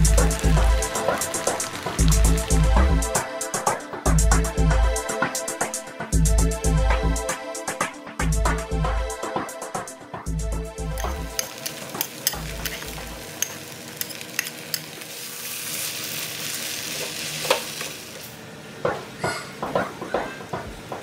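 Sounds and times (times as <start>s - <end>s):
noodles sizzling: 0.0s - 4.2s, 10.8s - 18.8s
metal spatula scraping a wok: 11.0s - 15.0s.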